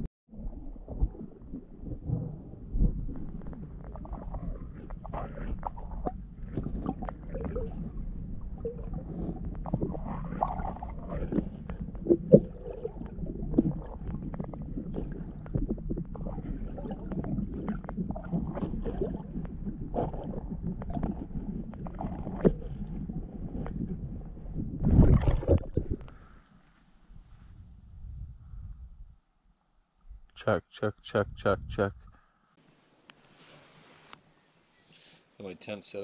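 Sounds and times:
muffled underwater rumble: 0:00.0 - 0:29.2
underwater clicks and knocks: 0:03.1 - 0:26.2.

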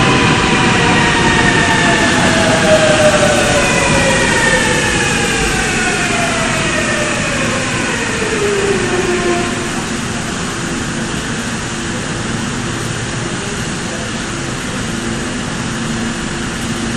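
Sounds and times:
train inverter whining down: 0:00.0 - 0:16.9
train running hum: 0:00.0 - 0:16.9.

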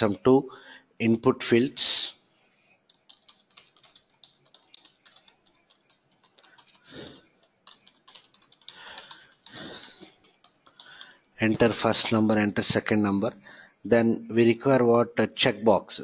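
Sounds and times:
computer keyboard typing: 0:02.8 - 0:12.8.

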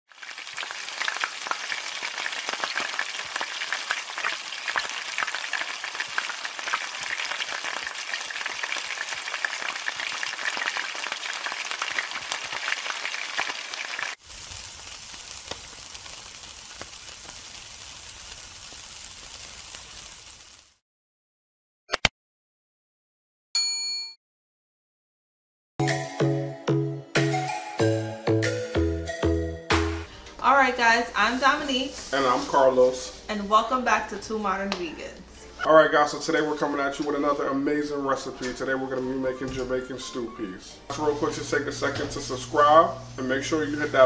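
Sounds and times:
food deep-frying in hot oil: 0:00.1 - 0:20.8
meat sizzling on a grill: 0:00.1 - 0:20.8, 0:31.2 - 0:33.3, 0:40.9 - 0:44.0.

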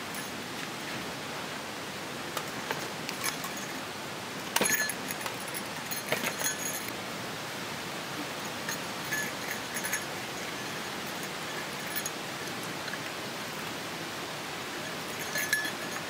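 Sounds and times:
steady background hiss: 0:00.0 - 0:16.0
buckles clicking and jangling: 0:02.4 - 0:03.8, 0:04.6 - 0:06.9, 0:08.7 - 0:13.2, 0:15.1 - 0:16.0
backpack set down on rocks: 0:04.5 - 0:05.3, 0:05.9 - 0:06.8.

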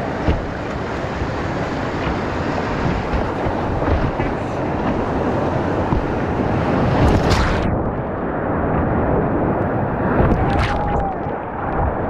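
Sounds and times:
paddle splashes and knocks: 0:00.0 - 0:07.7
whitewater rushing: 0:00.0 - 0:12.0.

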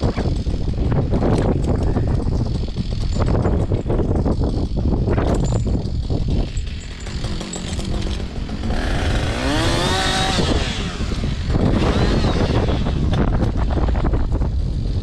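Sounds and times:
wind buffeting microphone: 0:00.0 - 0:15.0
chainsaw revving: 0:05.8 - 0:15.0.

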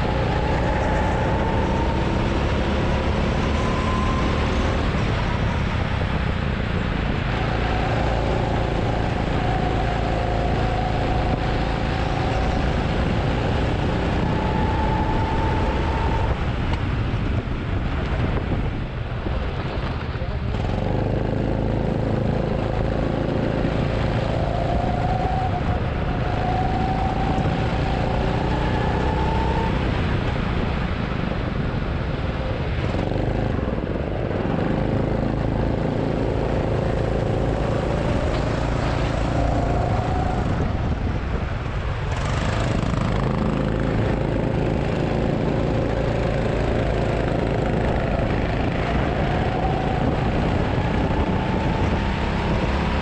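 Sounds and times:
go-kart engine accelerating: 0:00.0 - 0:17.3, 0:20.4 - 0:31.7, 0:32.6 - 0:53.0.

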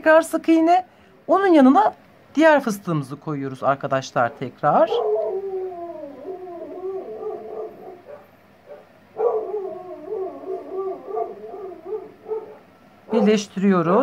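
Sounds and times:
dog whining: 0:04.3 - 0:13.4.

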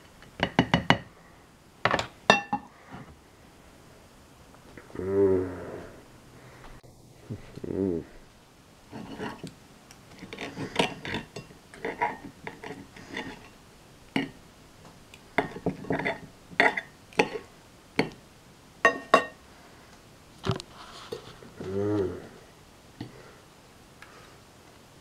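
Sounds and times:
cutlery scraping and tapping plate: 0:08.9 - 0:09.5, 0:10.2 - 0:13.6, 0:15.4 - 0:18.2.

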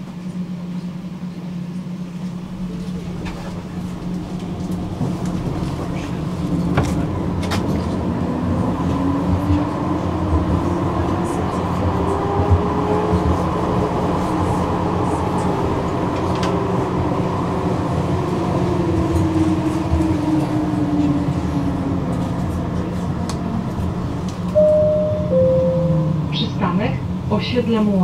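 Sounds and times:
tram rumbling on rails: 0:00.0 - 0:28.0
two-note chime: 0:24.6 - 0:26.3.

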